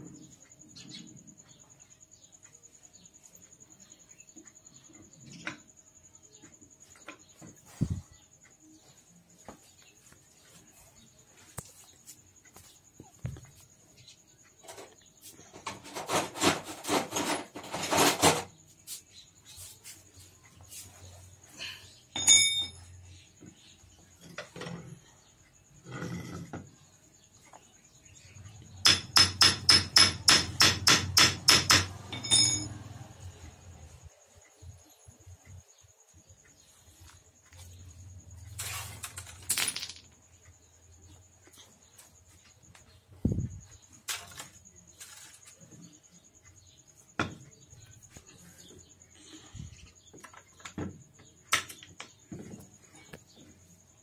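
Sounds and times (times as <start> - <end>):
faint steady high tone: 21.7 - 23.1
metallic ringing clink: 22.1 - 22.9, 32.1 - 32.9
hammer tapping on metal: 28.8 - 32.7
metal parts clicking on concrete: 31.4 - 32.9, 38.4 - 40.6, 43.9 - 45.8.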